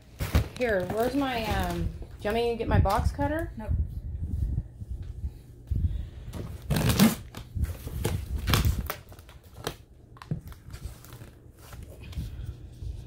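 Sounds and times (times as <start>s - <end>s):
scissors cutting plastic wrap: 6.6s - 7.4s.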